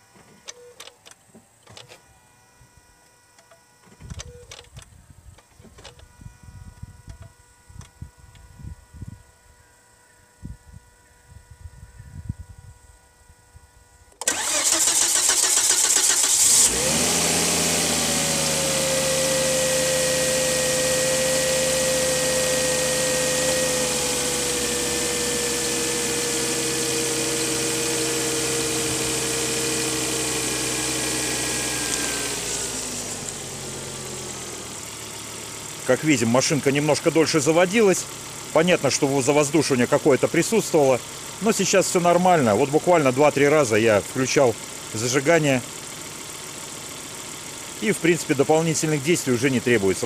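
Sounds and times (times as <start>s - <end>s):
car engine cranking and idling: 14.1s - 50.0s.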